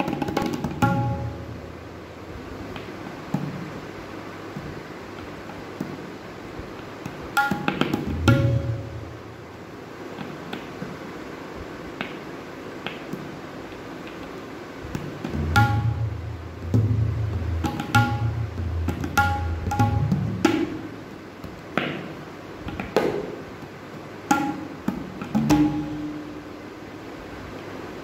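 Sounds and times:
ringing tabla strokes: 0.0 - 1.7, 7.4 - 9.2, 15.0 - 20.9, 24.3 - 26.6.

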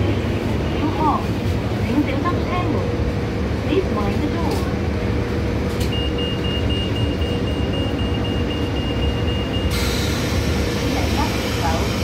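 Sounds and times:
train equipment hum and rumble: 0.0 - 12.0
high-pitched door warning beeps: 5.8 - 10.1.

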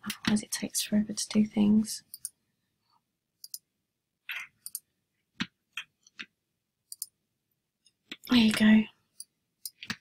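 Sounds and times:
mouse and keyboard clicks: 2.1 - 2.4, 3.4 - 3.7, 4.3 - 7.2.

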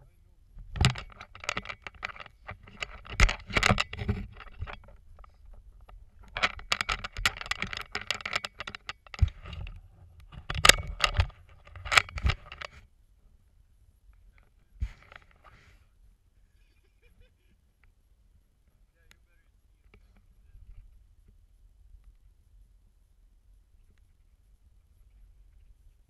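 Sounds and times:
scraping and clattering on bridge: 0.6 - 12.8.

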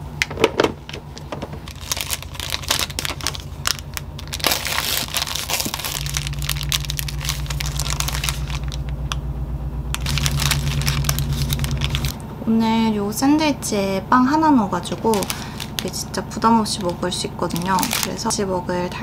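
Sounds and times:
steady low hum: 0.0 - 19.0
baking paper crinkling: 1.1 - 9.1, 10.0 - 12.2, 14.8 - 18.4.

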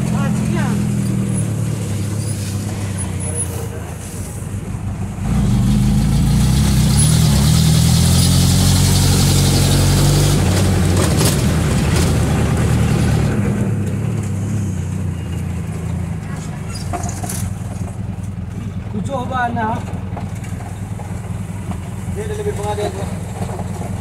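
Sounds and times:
bus engine from inside cabin: 0.0 - 24.0.

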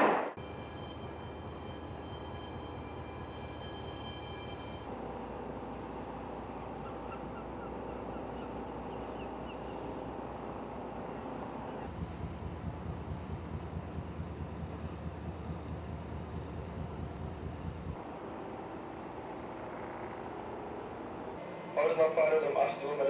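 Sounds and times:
thin high steady tones: 0.4 - 4.9
ship engine low hum: 0.4 - 23.0
bird chirps: 6.8 - 9.9
wind buffeting microphone: 11.9 - 18.0.

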